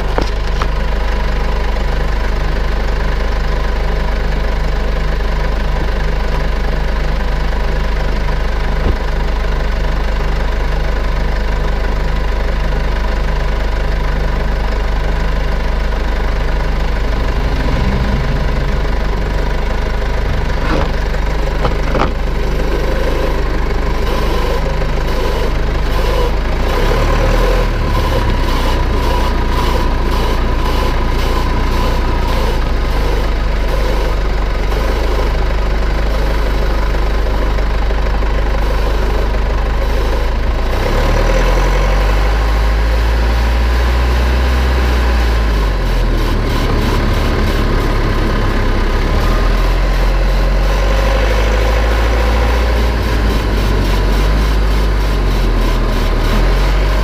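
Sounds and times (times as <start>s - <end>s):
car engine drone: 0.0s - 57.0s
brighter wavering hum: 16.5s - 37.4s.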